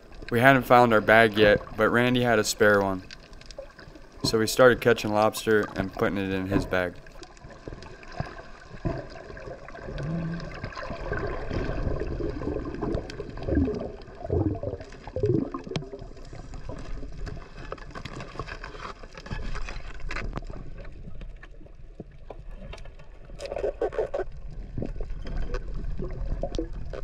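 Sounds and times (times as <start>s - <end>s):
water gurgling and bubbling: 5.6s - 17.5s, 23.4s - 27.0s.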